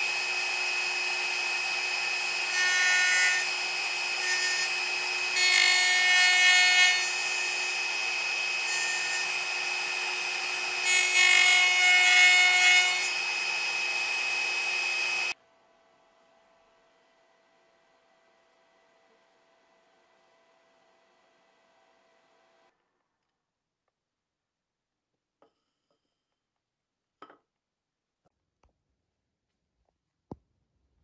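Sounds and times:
router bit cutting wood: 0.0s - 15.4s
router spindle whining: 0.0s - 15.4s.

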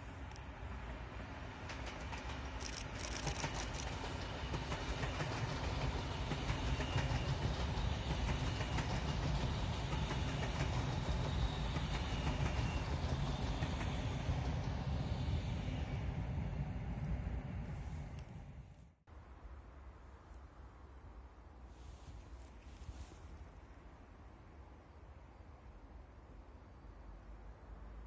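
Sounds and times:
train wheels rumbling on rails: 0.0s - 18.9s
wheel clicks: 2.0s - 4.2s.

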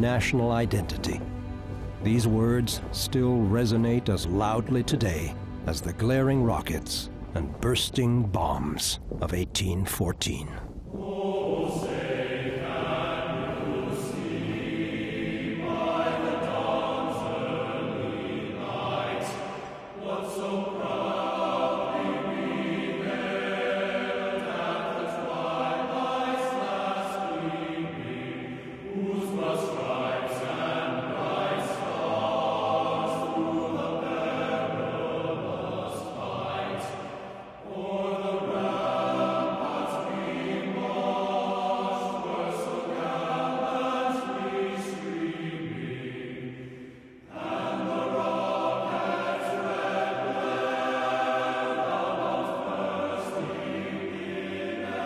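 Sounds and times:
choir singing held chords: 0.0s - 8.6s, 10.3s - 55.0s.

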